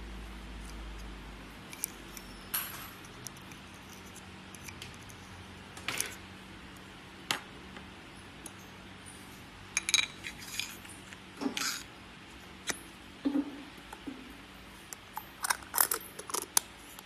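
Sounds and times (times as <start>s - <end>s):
small metal parts clinking: 9.8s - 11.9s, 15.1s - 16.6s.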